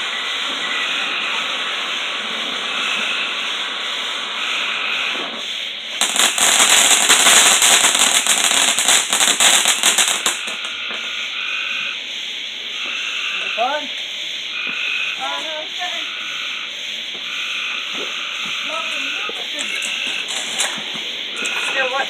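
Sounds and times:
firework hissing and crackling: 0:00.0 - 0:22.0.

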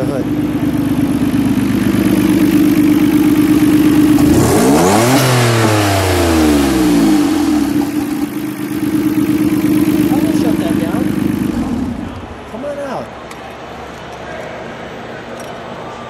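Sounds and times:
car engine idling and revving: 0:00.0 - 0:12.5.

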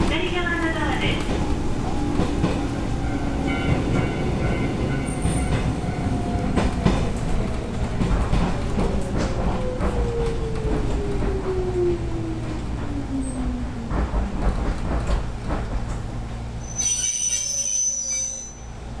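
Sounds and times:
low train running rumble: 0:00.0 - 0:19.0
high-pitched brake squeal: 0:16.6 - 0:18.7.

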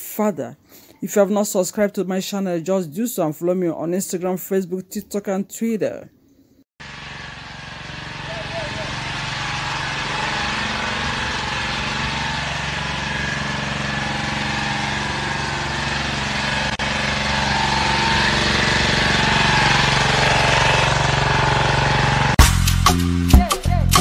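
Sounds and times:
engine humming steadily: 0:06.8 - 0:22.4
music with strong beat: 0:22.4 - 0:24.0.

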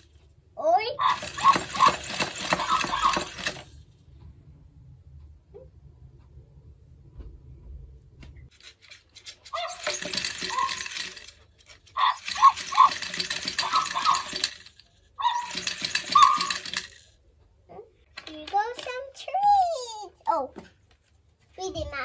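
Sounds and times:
toy motors whirring and rattling: 0:01.0 - 0:03.8, 0:08.5 - 0:17.2, 0:18.1 - 0:19.4
electronic barks: 0:12.0 - 0:14.4, 0:15.2 - 0:16.7.

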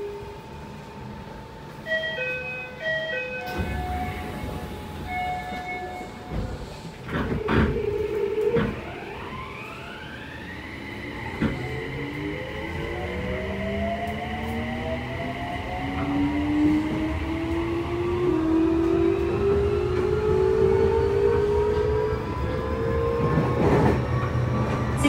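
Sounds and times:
train inverter whine: 0:00.0 - 0:25.0
door chimes: 0:01.9 - 0:06.4
train doors thudding shut: 0:03.4 - 0:09.0.

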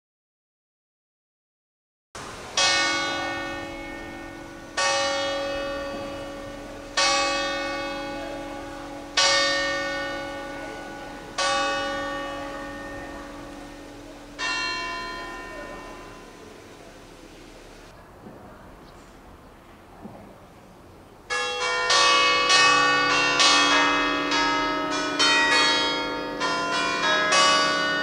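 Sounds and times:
church bell ringing: 0:02.3 - 0:17.9, 0:21.3 - 0:28.0.

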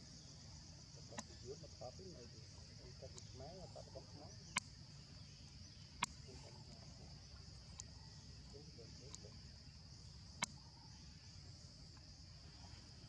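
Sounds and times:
sharp clicks: 0:01.1 - 0:01.4.

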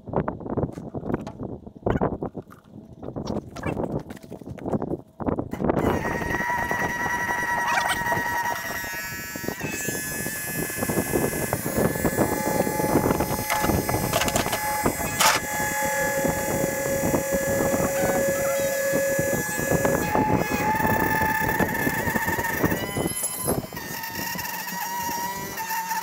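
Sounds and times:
electric pump motor whine: 0:05.5 - 0:26.0.

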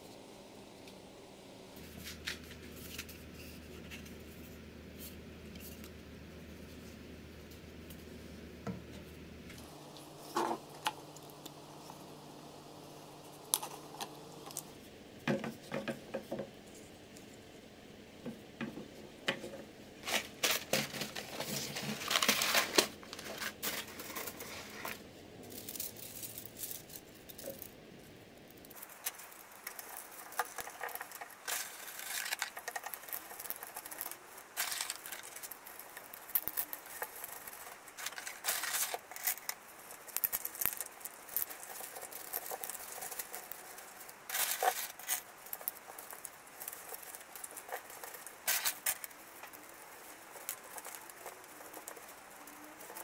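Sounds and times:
plastic pipe knocking and scraping: 0:15.3 - 0:16.5
bamboo skewers rattling: 0:19.3 - 0:53.0.

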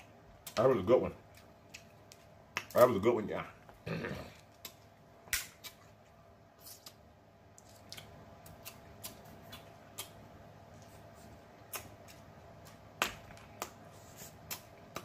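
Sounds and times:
mouth smacking while eating: 0:08.0 - 0:10.2.

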